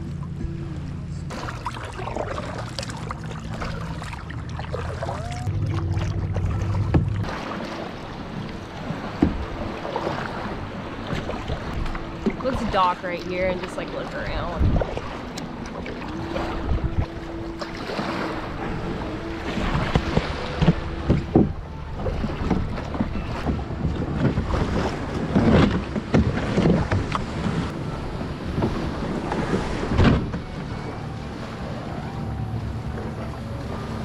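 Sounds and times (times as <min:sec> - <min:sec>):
small waves lapping: 0:00.0 - 0:34.0
wind buffeting microphone: 0:08.2 - 0:34.0.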